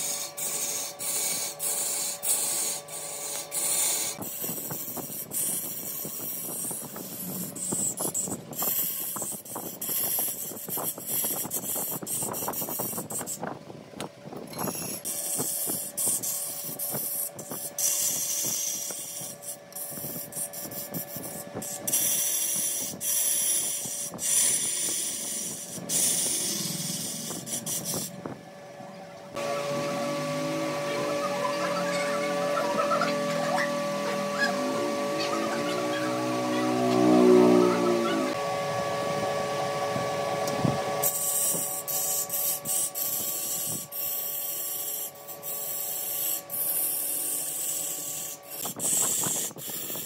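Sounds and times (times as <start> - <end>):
wood lathe humming: 0.0 - 13.4, 14.6 - 50.0
tool hissing and scraping wood: 0.0 - 13.6, 14.5 - 28.4, 29.4 - 38.4, 40.4 - 50.0.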